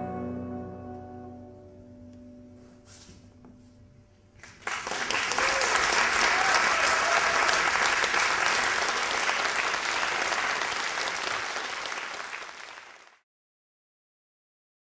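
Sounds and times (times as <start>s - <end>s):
audience applauding: 4.4s - 13.2s.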